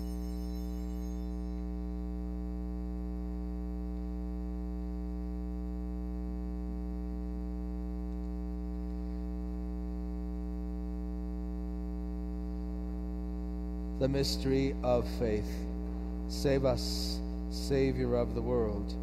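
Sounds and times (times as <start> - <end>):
altar bells ringing: 0.0 - 1.6
electrical mains hum: 0.0 - 19.0.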